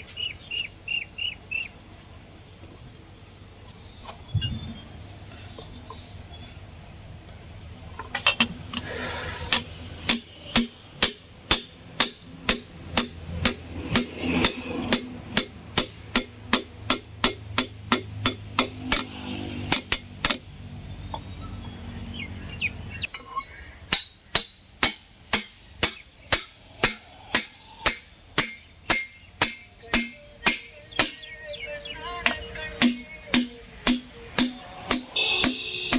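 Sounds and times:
hammer tapping on metal: 9.5s - 20.5s, 23.9s - 31.3s, 32.2s - 35.9s.

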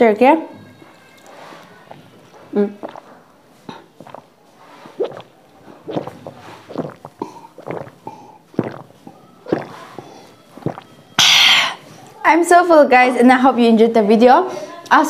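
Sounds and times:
slurping sip of water: 1.2s - 12.2s
breathy mouth puffs and smacks: 1.3s - 12.0s.

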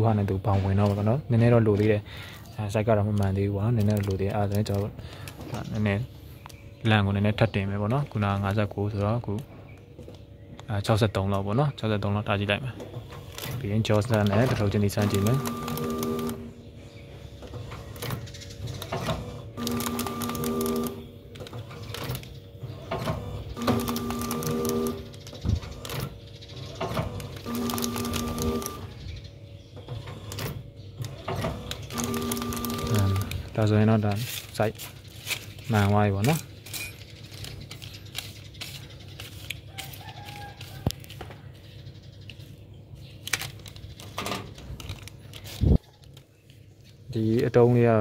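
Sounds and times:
foil sachets crinkling: 3.6s - 5.4s, 31.9s - 41.2s, 43.1s - 47.0s
machine motor hum: 12.7s - 33.9s
rapid mechanical clicking and knocking: 17.4s - 28.8s, 29.8s - 33.4s.

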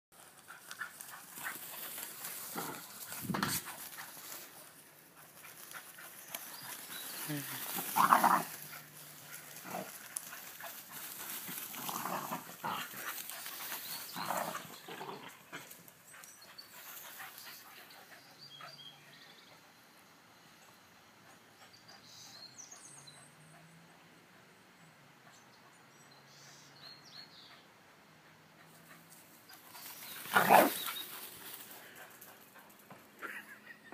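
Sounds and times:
dogs panting: 0.2s - 19.9s, 27.5s - 33.6s
dogs running: 0.3s - 14.9s, 29.6s - 33.2s
dogs barking: 30.3s - 31.1s.

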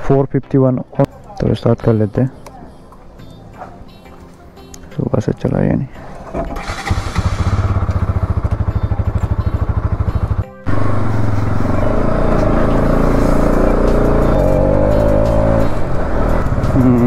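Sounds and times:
music: 0.0s - 17.0s
motorcycle engine idling: 6.0s - 17.0s.

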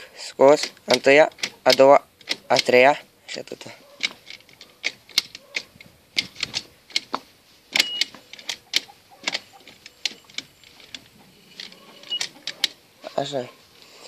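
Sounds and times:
plastic and metal clicks from controls: 0.5s - 2.9s, 4.0s - 12.8s.

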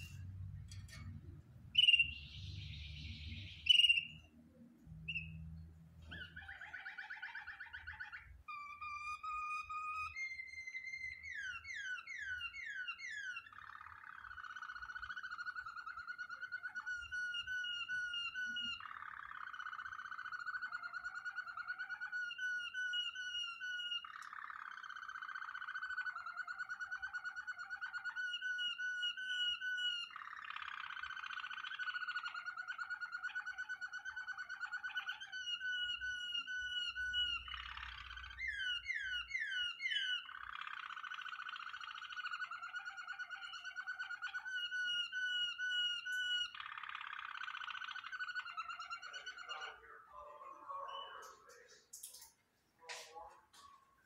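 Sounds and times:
canary singing: 0.0s - 54.0s.

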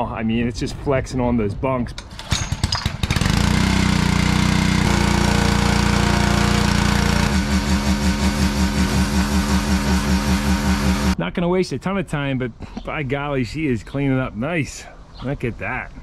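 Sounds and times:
pressure washer engine running: 3.1s - 11.2s.

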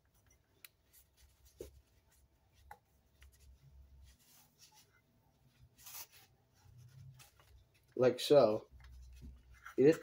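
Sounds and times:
soft rope rustles: 0.0s - 10.0s.

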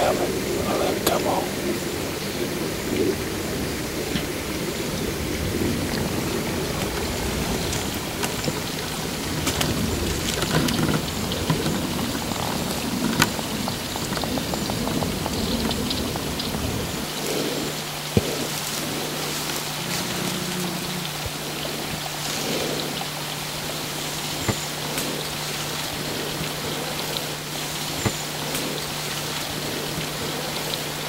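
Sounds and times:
low rumble: 0.0s - 17.2s, 18.3s - 23.0s
faint steady hum: 0.0s - 31.0s.

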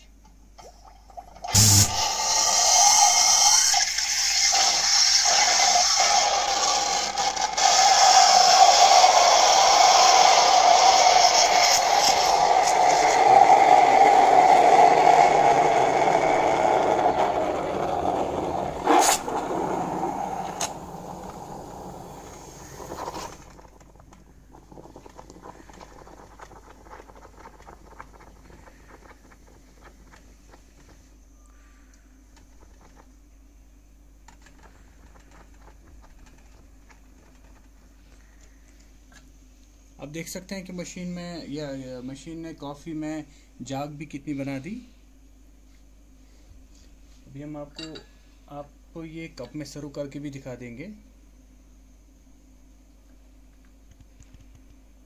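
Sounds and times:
steam wand hissing into milk: 1.5s - 23.7s.

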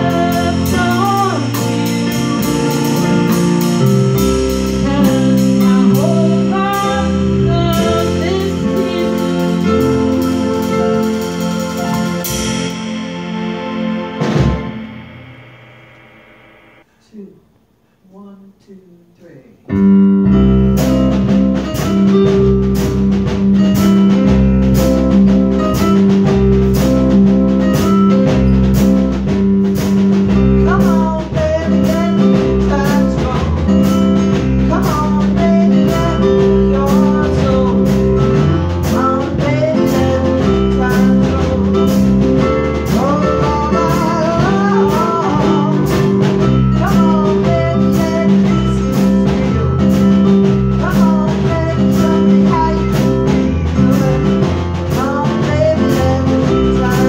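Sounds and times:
person singing: 0.0s - 14.8s, 30.3s - 57.0s
electronic keyboards: 0.0s - 17.0s, 19.7s - 57.0s
drum kit beat: 0.0s - 17.5s, 19.7s - 57.0s.

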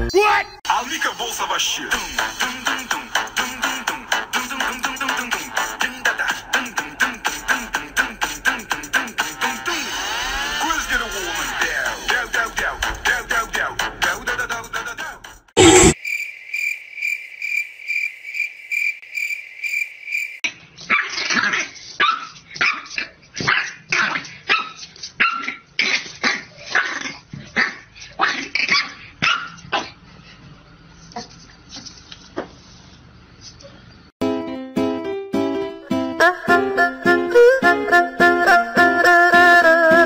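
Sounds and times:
puppy yapping: 20.9s - 30.0s.

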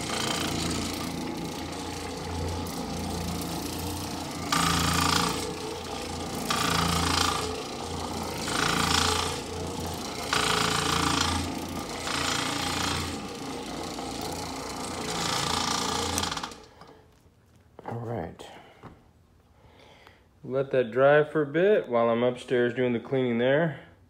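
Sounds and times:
floor machine motor hum with rattle: 0.0s - 17.6s.

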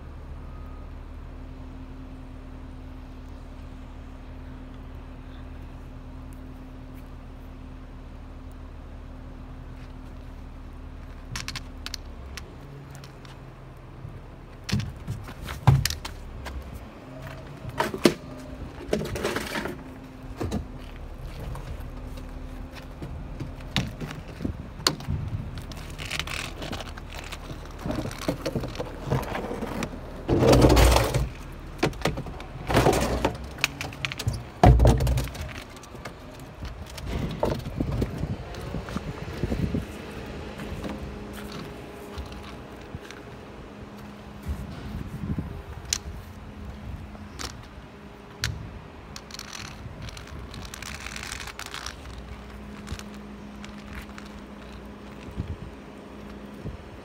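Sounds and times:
truck engine idling: 0.0s - 57.0s
clunks knocks and rattles: 14.5s - 39.8s.

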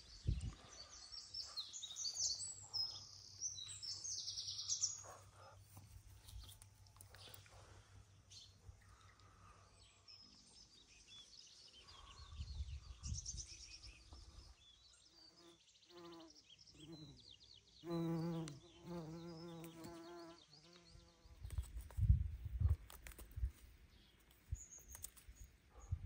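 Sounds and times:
small birds chirping: 0.0s - 26.0s
wind gust on microphone: 12.2s - 13.9s.

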